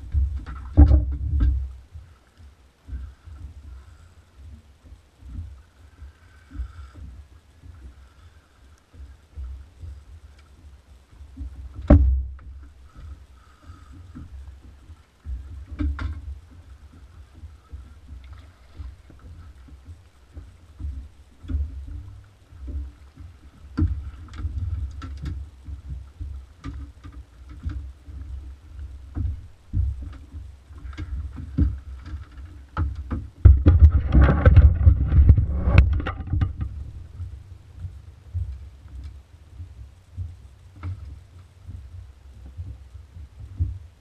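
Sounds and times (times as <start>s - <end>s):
fish knocking and rustling in net: 0.0s - 1.7s, 11.2s - 43.8s
boat engine low rumble: 0.0s - 44.0s
knocks and clatters on hull: 0.0s - 44.0s.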